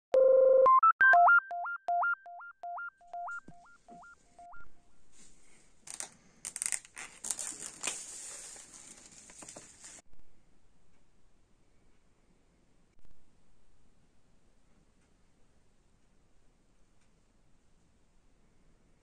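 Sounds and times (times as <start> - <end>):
electronic telephone beeps: 0.2 - 4.7
plastic shrink wrap crinkling: 5.8 - 10.0.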